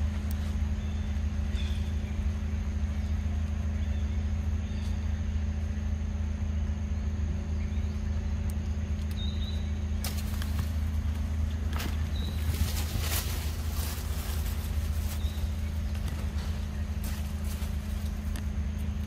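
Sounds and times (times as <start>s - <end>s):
steady low hum: 0.0s - 19.0s
rustling: 10.0s - 18.4s.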